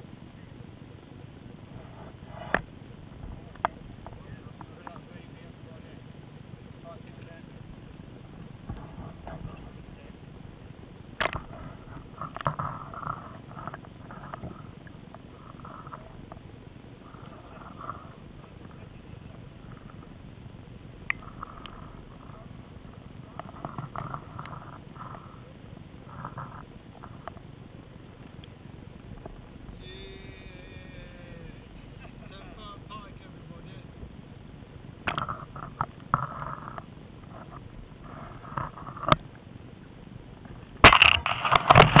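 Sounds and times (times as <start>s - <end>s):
low steady rumble: 0.0s - 42.0s
clicks and knocks on microphone: 11.2s - 14.6s, 35.0s - 39.3s, 40.4s - 42.0s.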